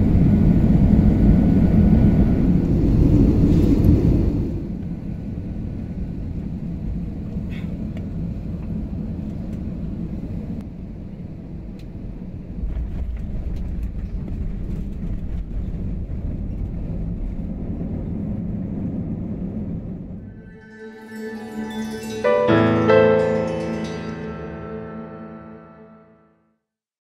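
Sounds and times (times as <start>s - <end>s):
airliner cabin rumble: 0.0s - 20.3s.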